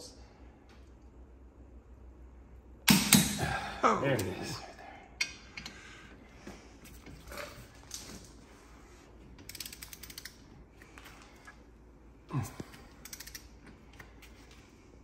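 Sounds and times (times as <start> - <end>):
torque wrench ratcheting clicks: 9.5 - 10.4, 13.0 - 13.5.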